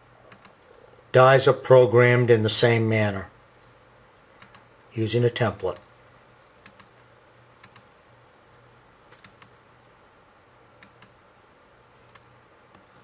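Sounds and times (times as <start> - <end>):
computer mouse clicks: 0.3 - 0.6, 4.4 - 4.7, 5.7 - 7.0, 7.6 - 8.0, 9.1 - 9.6, 10.8 - 11.2, 12.0 - 12.9.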